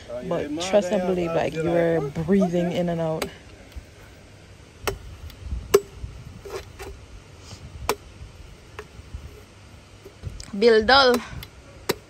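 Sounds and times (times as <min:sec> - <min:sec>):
machete chopping coconut: 0:04.8 - 0:05.1, 0:05.7 - 0:07.0, 0:07.8 - 0:08.1, 0:11.1 - 0:12.0.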